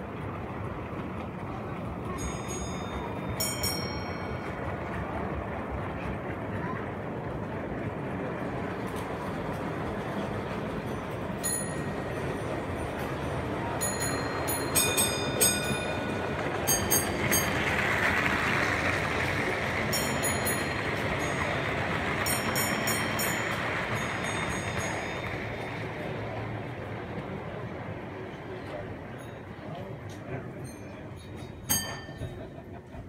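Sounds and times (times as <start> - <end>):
hall background noise: 0.0 - 33.0
model train running: 0.0 - 33.0.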